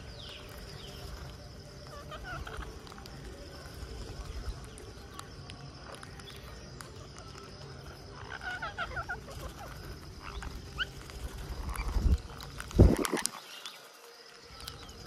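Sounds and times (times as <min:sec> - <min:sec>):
parakeet chirps: 0:08.1 - 0:13.7.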